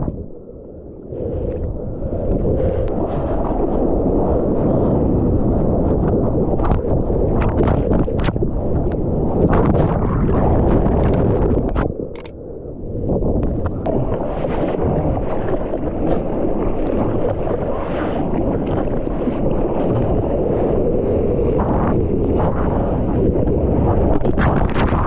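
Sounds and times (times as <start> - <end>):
wind buffeting microphone: 0.0 - 25.0
sharp clicks: 11.0 - 11.2.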